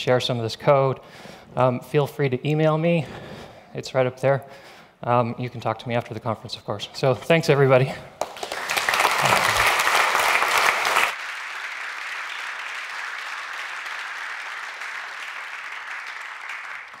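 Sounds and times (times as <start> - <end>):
audience applauding: 8.2 - 17.0.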